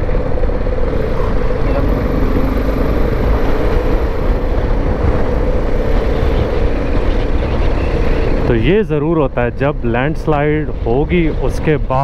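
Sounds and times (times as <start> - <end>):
motorcycle engine running: 0.0 - 8.5.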